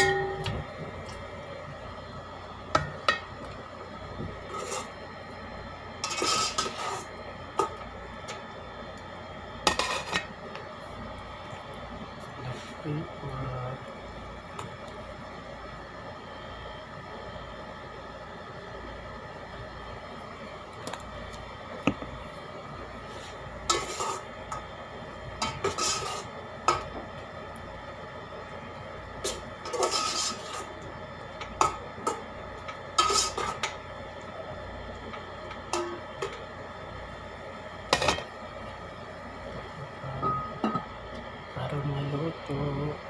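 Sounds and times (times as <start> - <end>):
metal utensil scraping a pot: 4.5 - 4.9, 6.0 - 7.1, 23.7 - 24.2, 25.4 - 26.3, 29.7 - 30.6.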